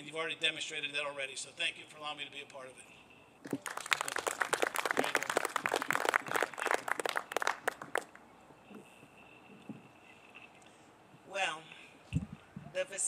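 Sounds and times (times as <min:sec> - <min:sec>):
audience applauding: 0:03.5 - 0:08.2.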